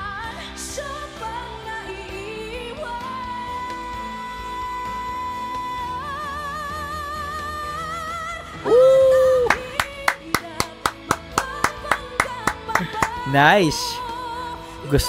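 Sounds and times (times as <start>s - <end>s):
women singing duet: 0.0s - 14.9s
pop ballad backing: 0.0s - 15.0s
handclaps: 9.4s - 13.9s.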